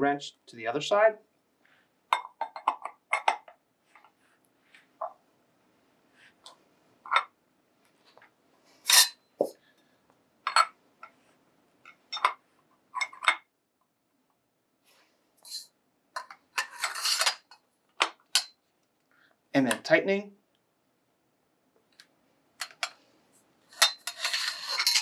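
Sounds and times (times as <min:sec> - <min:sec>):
metal wrenches clinking: 0:08.9 - 0:09.2, 0:16.2 - 0:17.6, 0:23.7 - 0:25.0
metal tools rattling: 0:23.8 - 0:25.0.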